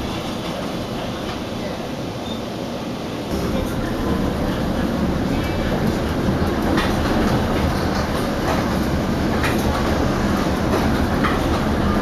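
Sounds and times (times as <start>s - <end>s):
streetcar rumble: 0.0s - 12.0s
wheels clicking on track: 3.3s - 12.0s.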